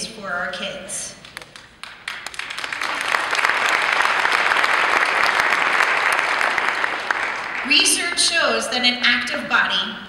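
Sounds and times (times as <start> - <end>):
audience applauding: 1.3 - 8.2.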